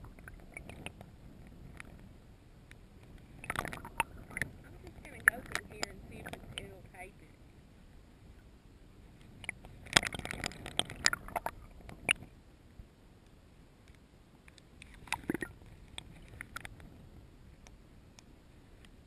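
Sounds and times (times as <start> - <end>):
water splashing: 0.0 - 1.0, 3.2 - 7.2, 9.3 - 12.3, 14.8 - 16.7
muffled underwater water gurgling: 0.0 - 2.4, 3.1 - 7.4, 9.0 - 12.4.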